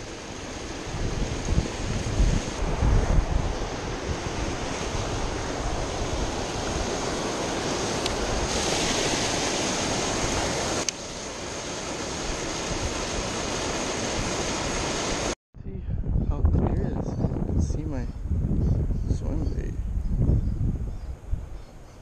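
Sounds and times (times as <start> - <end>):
wind buffeting microphone: 0.0 - 10.9, 15.6 - 22.0
rushing water through gate: 0.0 - 15.4.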